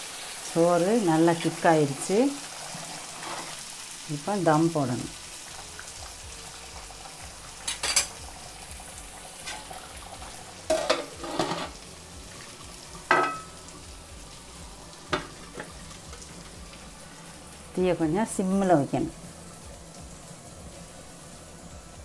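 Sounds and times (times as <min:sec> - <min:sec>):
rice bubbling with a hiss: 0:00.0 - 0:22.0
metal lid clanging: 0:07.7 - 0:08.2, 0:10.7 - 0:11.8, 0:13.1 - 0:13.5
metal knocks against a pot: 0:10.7 - 0:11.7, 0:13.1 - 0:13.5, 0:15.1 - 0:15.8.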